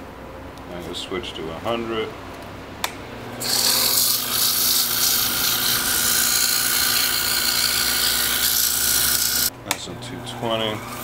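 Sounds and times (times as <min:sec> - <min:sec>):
lathe motor humming: 0:03.3 - 0:09.5, 0:10.1 - 0:11.0
sandpaper hissing on spinning wood: 0:03.4 - 0:09.5.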